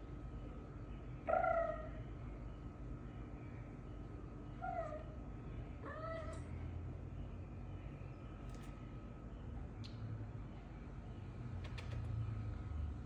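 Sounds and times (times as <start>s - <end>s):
cat meowing: 5.8s - 6.5s.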